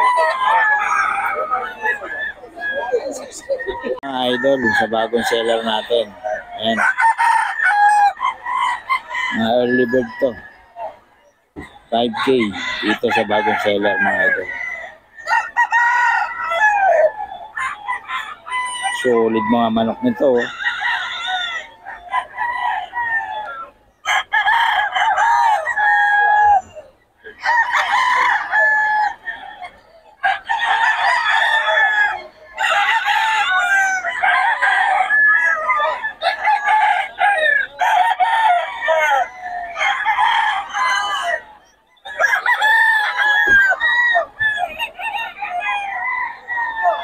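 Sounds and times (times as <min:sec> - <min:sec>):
roosters crowing: 0:00.0 - 0:47.0.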